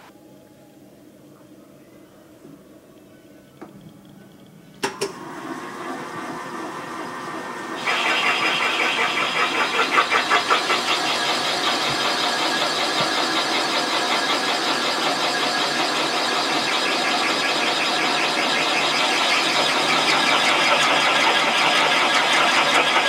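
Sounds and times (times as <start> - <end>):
spindle spinning up: 7.8 - 16.1
cutter cutting metal with chatter: 7.8 - 23.0.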